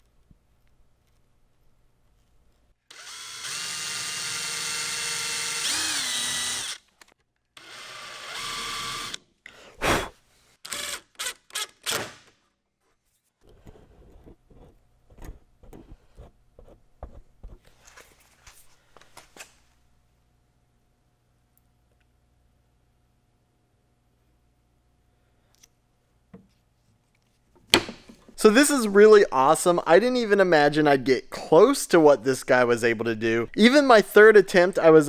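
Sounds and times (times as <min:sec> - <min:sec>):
drill trigger bursts driving screw: 0:02.9 - 0:06.9, 0:07.6 - 0:09.2, 0:10.6 - 0:12.2
power drill boring into wood: 0:02.9 - 0:06.9, 0:07.6 - 0:09.2, 0:10.7 - 0:12.2.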